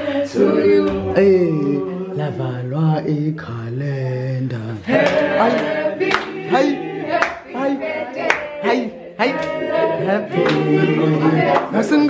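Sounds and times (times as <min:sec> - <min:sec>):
group of voices singing: 0:00.0 - 0:12.0
sharp hand clap: 0:04.9 - 0:06.4, 0:07.1 - 0:07.4, 0:10.4 - 0:11.8.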